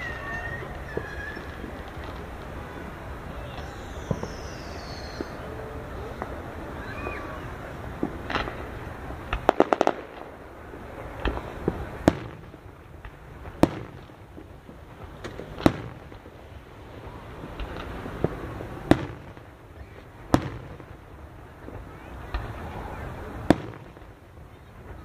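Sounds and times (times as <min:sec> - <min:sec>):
fireworks exploding: 0:00.0 - 0:25.0.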